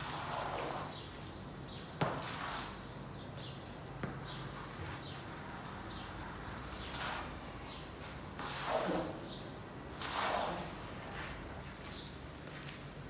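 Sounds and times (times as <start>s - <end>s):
water swishing across floor: 10.0s - 11.4s.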